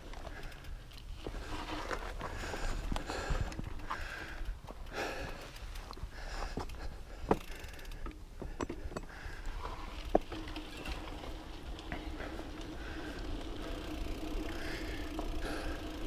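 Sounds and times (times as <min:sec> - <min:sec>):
bike rattles and clicks: 0:00.0 - 0:16.0
bike tyres rumbling on dirt: 0:00.0 - 0:16.0.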